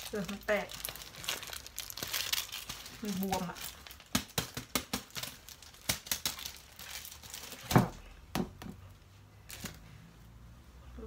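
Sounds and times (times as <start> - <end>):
aluminium foil crinkling: 0.0 - 7.9, 9.5 - 9.8.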